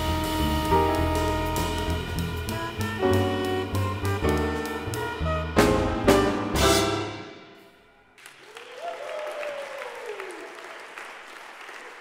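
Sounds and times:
jazz quartet playing chords: 0.0s - 7.6s
audience applauding: 8.2s - 12.0s
long falling cheer: 8.2s - 12.0s.

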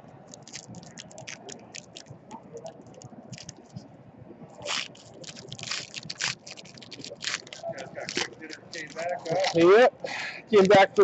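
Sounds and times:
wrapper ripping: 0.3s - 2.1s, 2.9s - 3.6s, 4.6s - 9.6s
wrapper crinkling: 0.3s - 2.2s, 2.8s - 3.7s, 4.6s - 9.6s.

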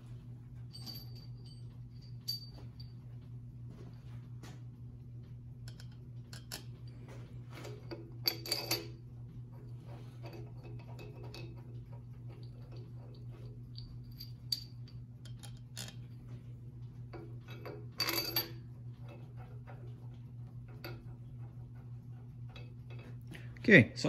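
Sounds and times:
steady low hum: 0.0s - 24.0s
metal bolts clicking and tapping: 5.7s - 7.0s, 7.6s - 9.0s, 10.2s - 16.1s, 17.1s - 20.0s.

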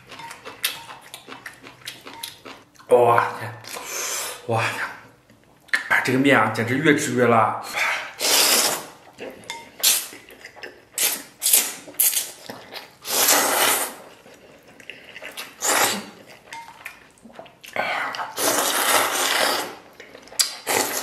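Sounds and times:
person slurping noodles: 7.7s - 9.0s, 13.0s - 14.1s, 15.0s - 16.3s, 18.0s - 19.8s, 20.6s - 21.0s.

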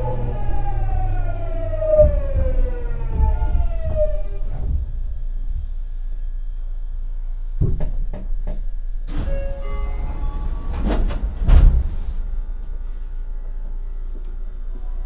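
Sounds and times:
heavy door thuds: 1.7s - 5.7s, 10.8s - 12.1s
air hiss of doors opening: 7.8s - 12.3s.

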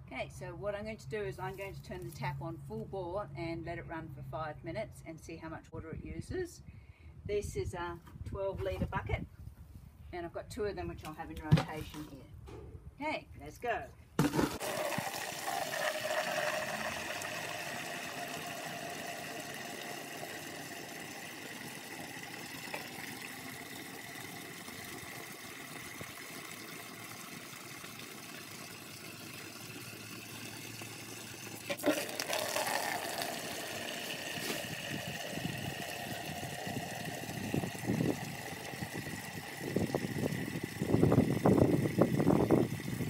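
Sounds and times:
water pouring into plastic bucket: 14.2s - 43.0s.

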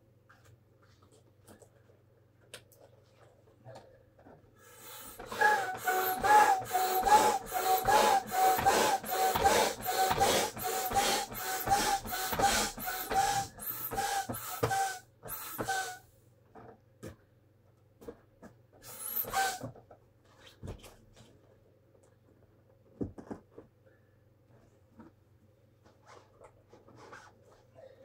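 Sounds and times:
hand air pump strokes: 4.7s - 16.0s, 18.8s - 19.7s.

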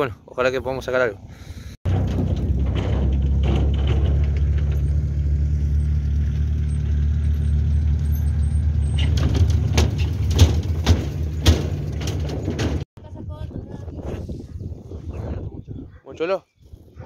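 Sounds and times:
short sharp bumps: 8.8s - 12.9s.

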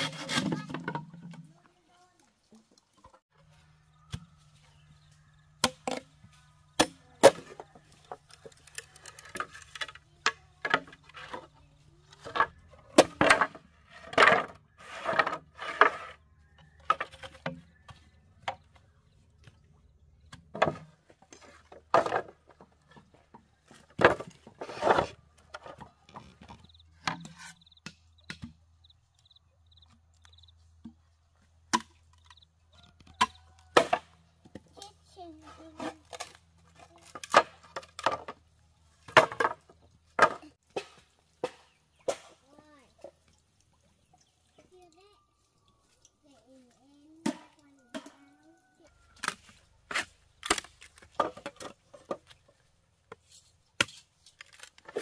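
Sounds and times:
hand tools chopping bamboo: 0.0s - 1.4s, 5.5s - 16.2s, 31.6s - 43.3s, 47.1s - 48.2s, 49.0s - 55.0s.

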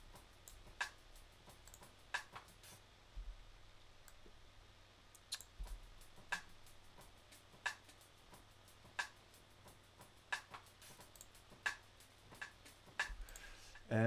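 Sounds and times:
low steady hum: 2.8s - 7.6s.

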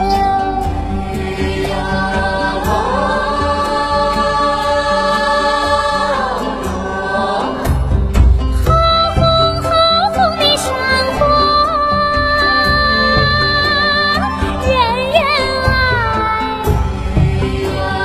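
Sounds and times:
choir-like held sung note: 0.0s - 8.0s, 15.7s - 18.0s
song with backing music: 0.0s - 18.0s.

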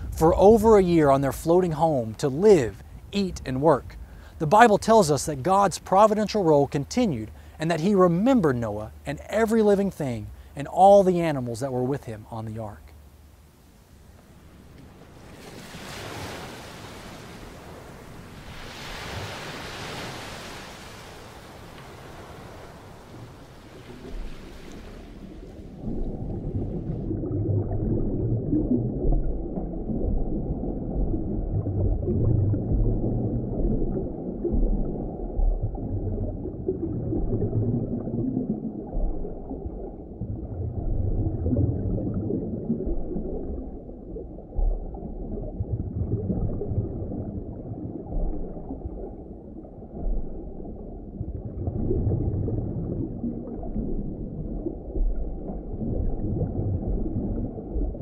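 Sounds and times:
muffled underwater rumble: 0.0s - 15.4s, 21.4s - 58.0s
surf: 14.2s - 27.0s.

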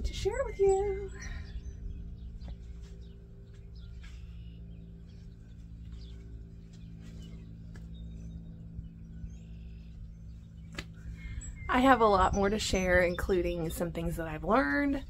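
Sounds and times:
birds chirping: 0.0s - 15.0s
low steady hum: 0.0s - 15.0s.

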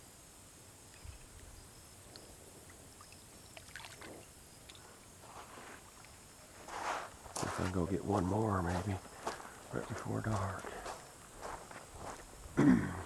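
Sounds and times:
creek water sloshing and trickling: 3.0s - 5.0s.

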